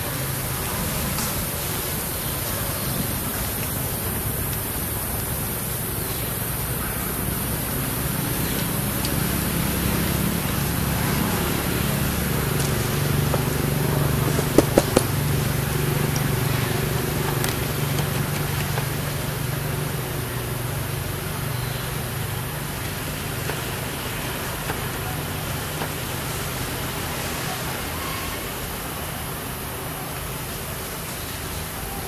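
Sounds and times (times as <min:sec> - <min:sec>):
traffic rumble: 0:00.0 - 0:32.0
sharp clicks: 0:14.3 - 0:15.1.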